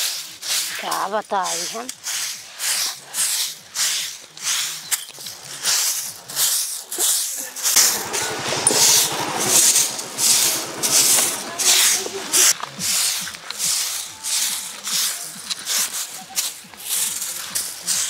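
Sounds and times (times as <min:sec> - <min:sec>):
broom sweeping dirt: 0:00.0 - 0:18.0
motor scooter engine running: 0:07.8 - 0:12.6.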